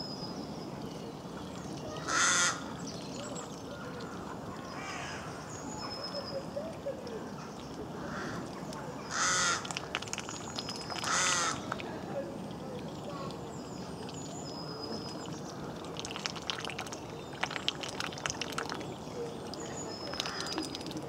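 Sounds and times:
crow cawing: 2.1 - 2.6, 9.1 - 9.6, 11.1 - 11.7.

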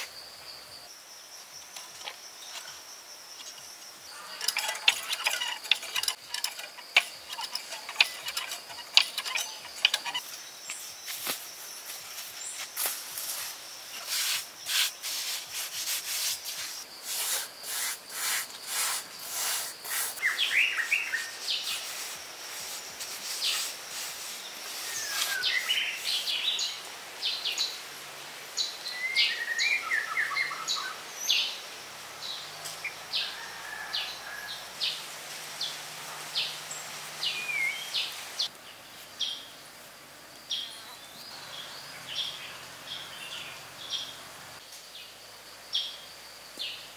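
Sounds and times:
small birds chirping: 0.0 - 27.9, 34.1 - 39.6, 40.4 - 46.9
hand smoothing wet mud: 14.0 - 20.2
stick scratching clay: 14.0 - 20.2.

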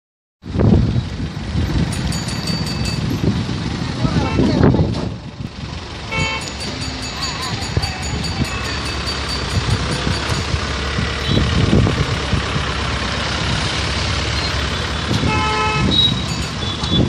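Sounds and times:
road traffic noise: 0.4 - 17.0
vehicle horn: 4.1 - 4.7, 6.1 - 6.7, 11.2 - 11.5, 15.2 - 17.0.

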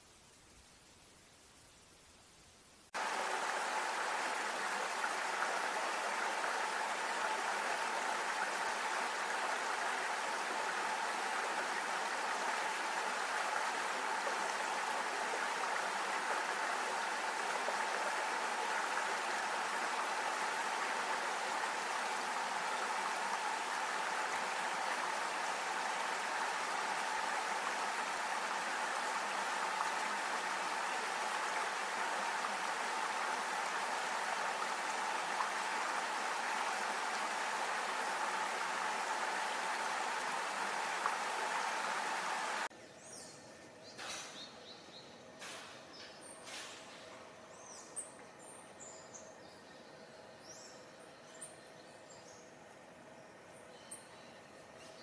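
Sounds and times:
stream running over stones: 2.9 - 42.7.

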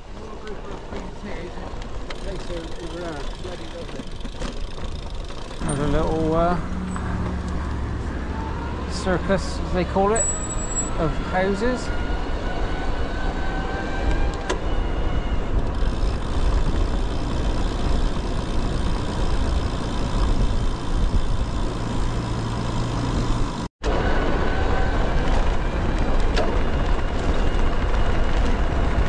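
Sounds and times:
bike tyres on road: 0.0 - 29.0
wind noise on microphone: 12.4 - 22.2.

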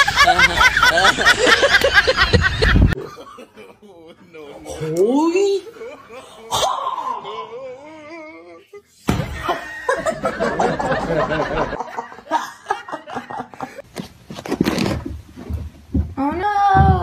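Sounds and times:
snickering and chuckling: 0.0 - 4.1, 9.3 - 13.8.

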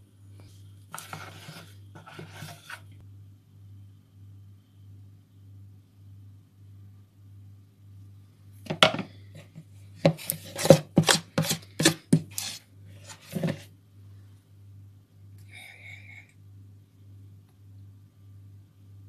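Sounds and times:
metal spoon scraping mixing bowl: 0.9 - 3.0, 10.0 - 13.6.

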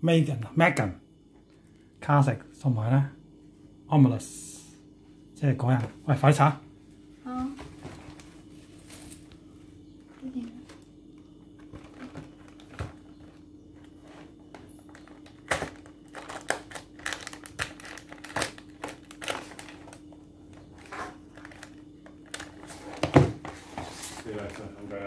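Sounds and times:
faint steady hum: 0.0 - 25.0
wrapper and cardboard crinkling: 11.7 - 25.0.

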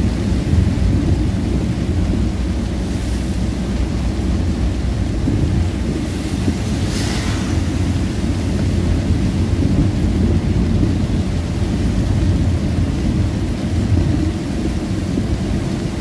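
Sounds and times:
vehicle driving in heavy rain: 0.0 - 16.0
brief hiss: 6.8 - 7.6.

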